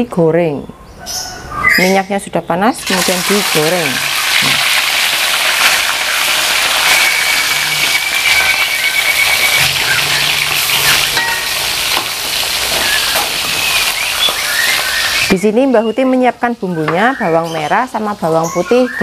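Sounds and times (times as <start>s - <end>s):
fish deep-frying in bubbling oil: 2.8s - 15.4s.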